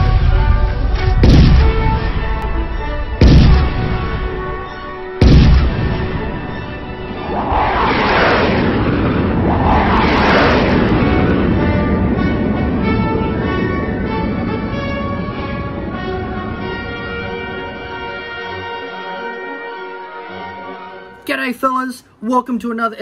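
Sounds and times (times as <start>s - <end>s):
cinematic booms: 0.0s - 18.8s
rushing noise surges: 5.8s - 11.5s.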